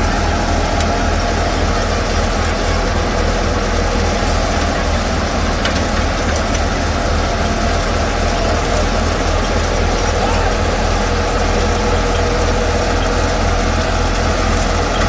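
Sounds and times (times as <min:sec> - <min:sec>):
thresher drum whirring: 0:00.0 - 0:15.0
tractor diesel engine running: 0:00.0 - 0:15.0.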